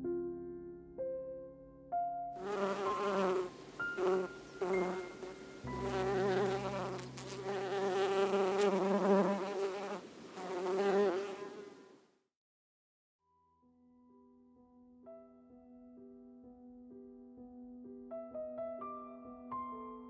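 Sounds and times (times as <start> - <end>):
honey bees buzzing: 2.4 - 11.8.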